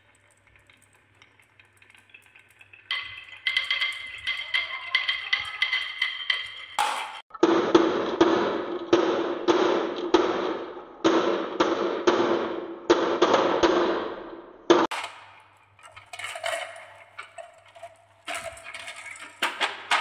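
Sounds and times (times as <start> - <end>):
glass marbles clacking: 2.9 - 7.2.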